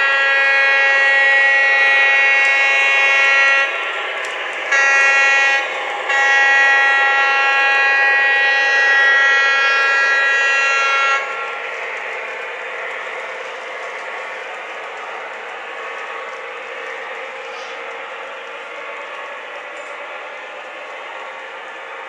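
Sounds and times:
model locomotive horn blasts: 0.0 - 3.8, 4.7 - 11.6
model locomotive running sound: 0.0 - 22.0.

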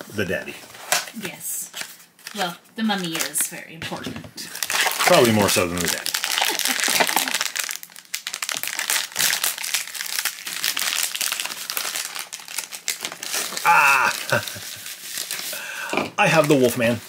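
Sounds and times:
foil pouch crinkling: 4.5 - 15.6
plastic bag crinkling: 4.5 - 15.6.

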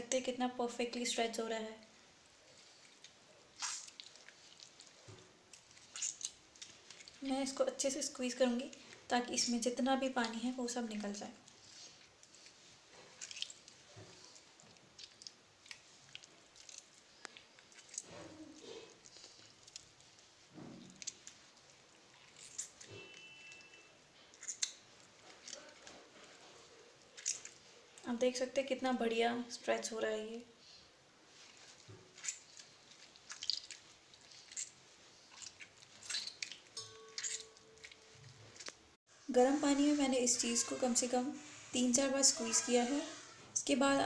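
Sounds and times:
wet squelching and dripping: 1.9 - 28.1, 30.5 - 39.0.

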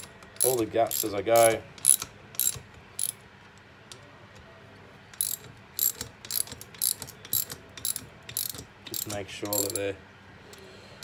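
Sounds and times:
ratchet wrench clicking: 0.0 - 3.2, 5.2 - 9.9.

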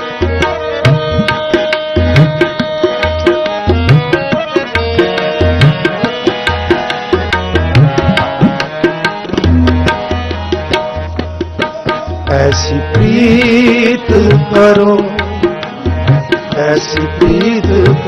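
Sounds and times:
tabla rhythm: 0.0 - 18.0.

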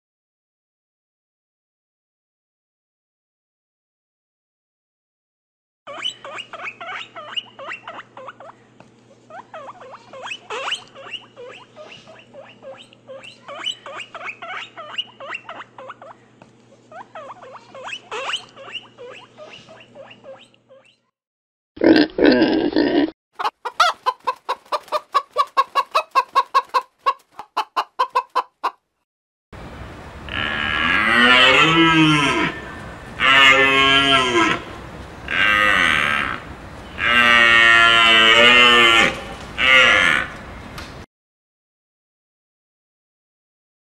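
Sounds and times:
fast clucking: 23.4 - 28.7
cattle mooing: 30.3 - 34.7, 35.3 - 40.4.

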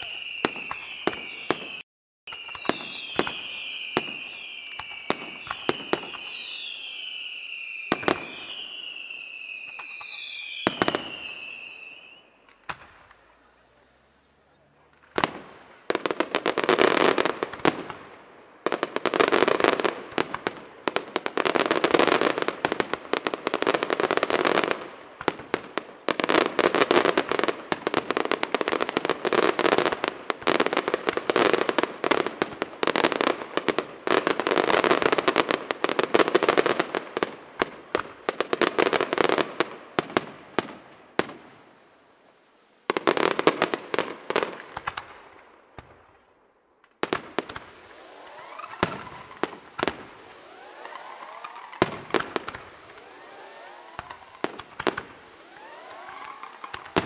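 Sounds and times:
rapid crackling pops: 54.0 - 57.0.

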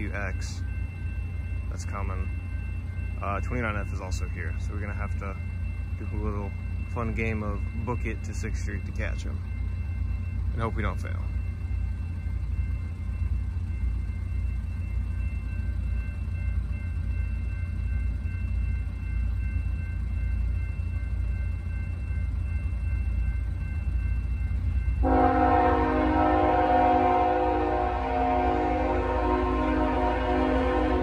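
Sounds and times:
freight train rumbling: 0.0 - 31.0
locomotive horn chord: 25.0 - 31.0.

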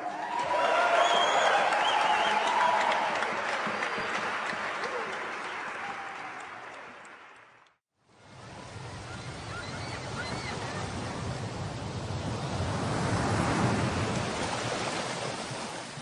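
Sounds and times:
rushing surf noise: 8.1 - 16.0
faint chirping calls: 9.0 - 11.0.

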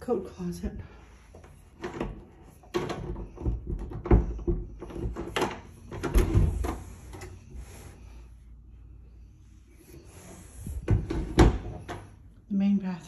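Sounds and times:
wooden door knocks and thumps: 2.7 - 6.7, 10.8 - 12.0.

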